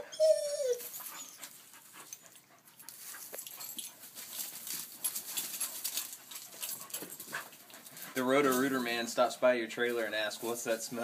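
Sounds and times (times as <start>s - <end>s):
dogs panting: 0.8s - 8.7s
paws rustling on leaves: 0.8s - 11.0s.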